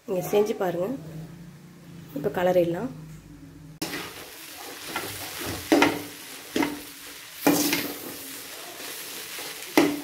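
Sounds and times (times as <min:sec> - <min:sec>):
metal spatula scraping a metal pan: 0:03.8 - 0:10.0.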